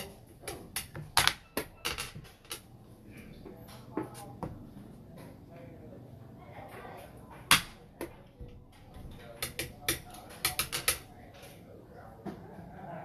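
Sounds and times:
game pieces clacking on wooden board: 0.0 - 2.7, 8.9 - 11.1.

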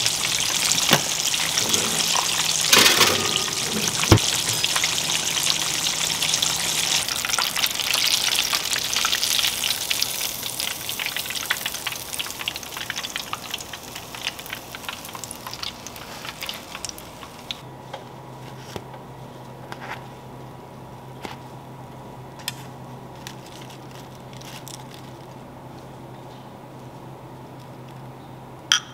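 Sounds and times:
fish deep-frying in oil: 0.0 - 17.6.

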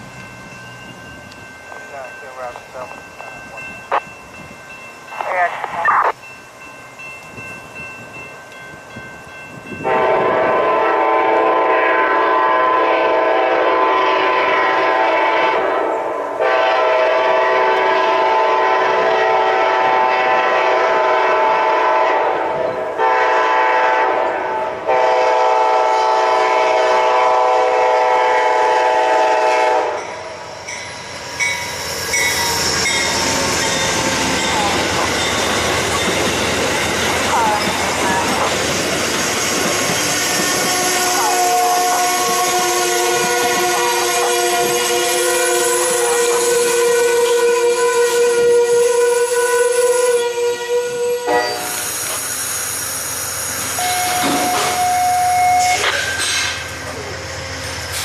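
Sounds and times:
locomotive air horn blasts: 9.8 - 30.1, 40.6 - 51.8
train wheels clattering over rails: 31.4 - 41.2, 53.6 - 55.0, 55.6 - 58.0.

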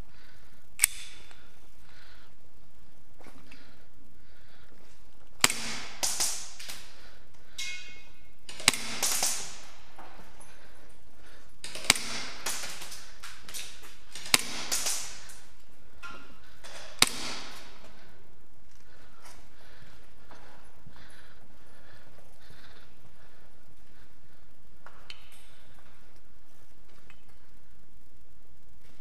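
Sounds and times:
steady background hiss: 0.0 - 29.0
sharp cracks: 0.2 - 2.3, 3.4 - 19.9.

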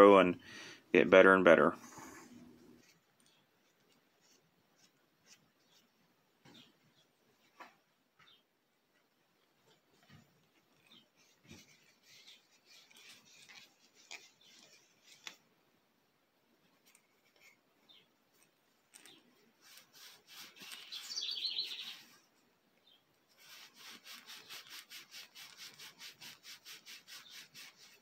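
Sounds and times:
cloth rubbing on wood: 9.6 - 15.4, 19.6 - 22.1, 23.3 - 28.0.

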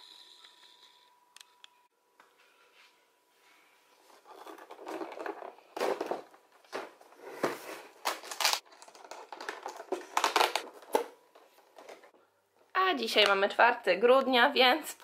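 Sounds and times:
cardboard box set on wooden table: 4.0 - 12.1.

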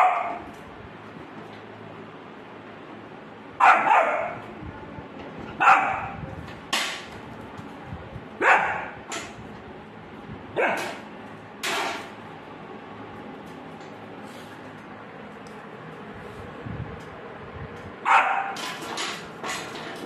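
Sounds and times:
puppy barking: 0.0 - 0.5, 3.6 - 4.4, 5.6 - 6.2, 8.4 - 9.0, 10.6 - 11.0, 18.0 - 18.6.

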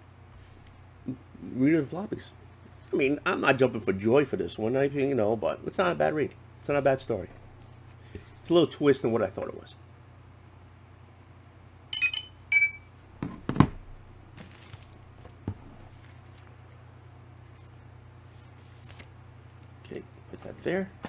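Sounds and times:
rustling of plastic bag: 14.3 - 16.7.

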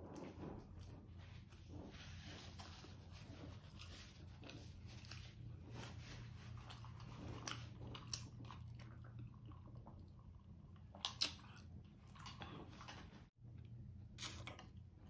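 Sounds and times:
person chewing: 6.5 - 10.3.

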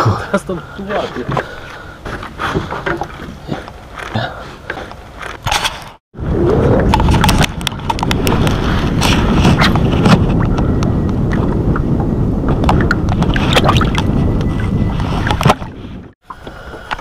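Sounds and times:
water splashing and sloshing: 0.0 - 17.0
wind rumble on microphone: 5.5 - 17.0.

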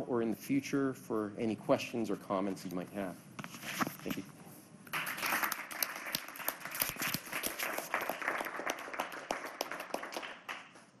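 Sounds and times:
audience applauding: 4.9 - 10.9.

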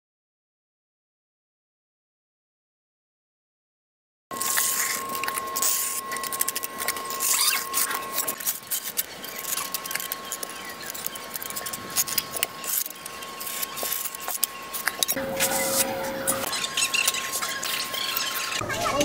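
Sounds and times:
thin steady high tone: 4.3 - 19.0
trowel scraping wet cement: 4.4 - 18.5.

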